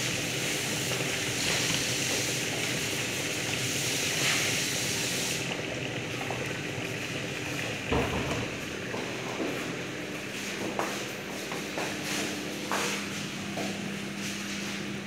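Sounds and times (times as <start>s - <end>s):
food sizzling in a frying pan: 0.0s - 5.5s.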